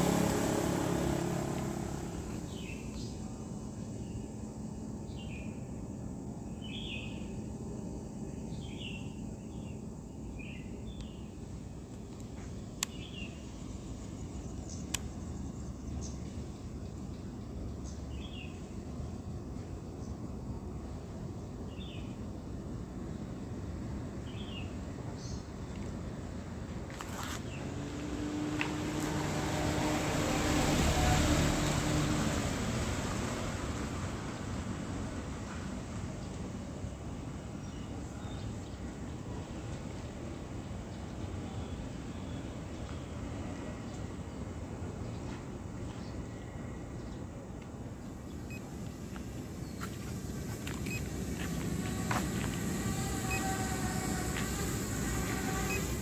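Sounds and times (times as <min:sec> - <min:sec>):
motor passing by: 0:00.0 - 0:03.3, 0:27.0 - 0:34.6, 0:49.4 - 0:56.0
faint multi-tone hum: 0:00.0 - 0:56.0
low outdoor rumble: 0:00.0 - 0:56.0
short high chirps and clicks: 0:50.8 - 0:51.1.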